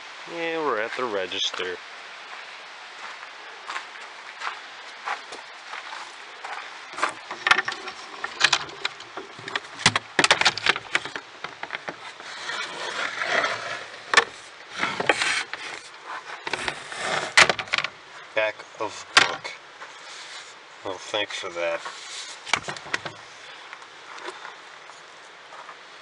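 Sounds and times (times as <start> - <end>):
scraping and rustling: 5.1 - 18.2, 18.9 - 23.5
wooden box knocks and clacks: 7.0 - 12.0, 16.5 - 17.9, 22.5 - 23.2.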